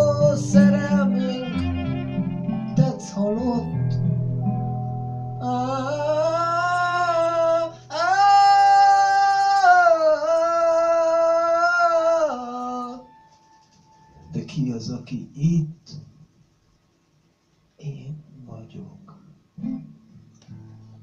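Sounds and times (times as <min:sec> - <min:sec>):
person singing long notes: 0:00.0 - 0:04.0, 0:05.4 - 0:13.1
acoustic guitar note ringing: 0:00.0 - 0:14.7.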